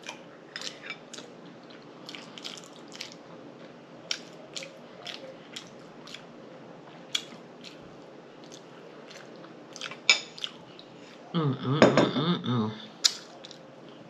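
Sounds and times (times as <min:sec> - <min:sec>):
person chewing food: 0:00.0 - 0:06.3, 0:06.9 - 0:11.2.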